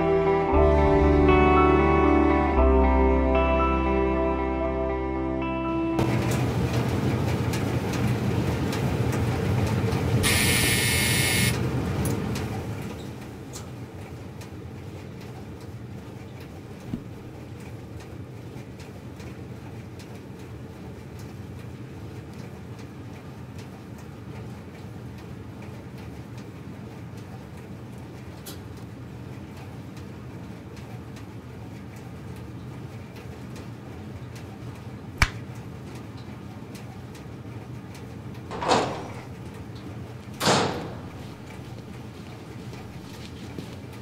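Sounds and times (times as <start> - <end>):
washing machines and dryers rumbling: 6.0 - 44.0
harsh buzz: 10.2 - 11.6
sharp click: 35.2 - 35.4.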